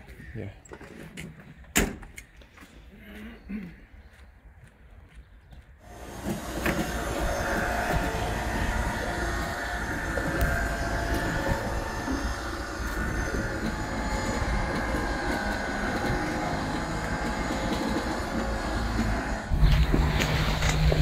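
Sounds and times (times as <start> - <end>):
motor running steadily: 5.8 - 21.0.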